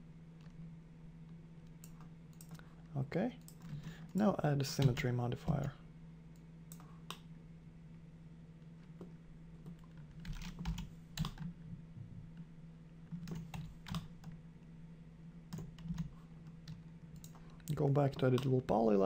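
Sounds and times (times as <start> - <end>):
steady low hum: 0.0 - 19.0
computer mouse clicks: 1.7 - 2.6, 6.4 - 7.3.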